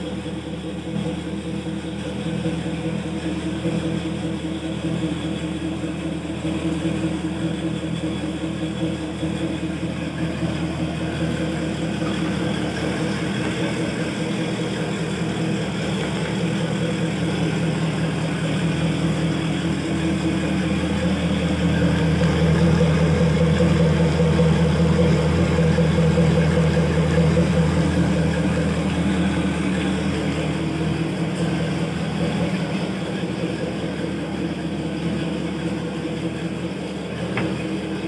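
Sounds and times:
outboard engine idling: 0:00.0 - 0:38.0
stream of water spitting: 0:09.8 - 0:38.0.

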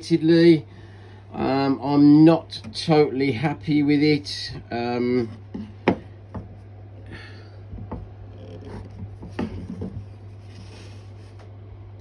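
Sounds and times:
steady low hum: 0:00.0 - 0:12.0
soft rubbing: 0:08.3 - 0:11.5.

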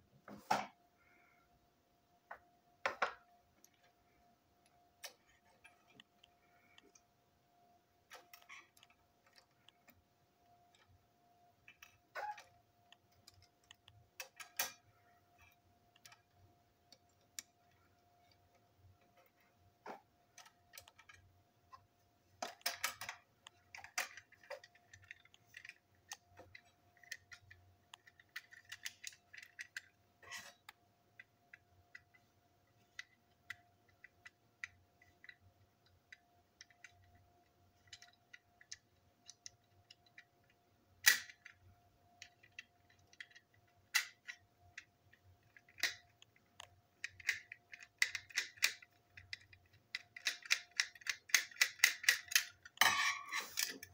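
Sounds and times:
faint steady hum: 0:00.0 - 0:53.9
plastic clicks and snaps: 0:37.8 - 0:52.8.

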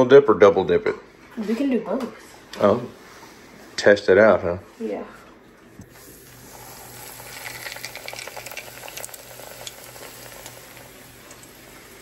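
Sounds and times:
meat frying with crackles: 0:05.9 - 0:12.0.

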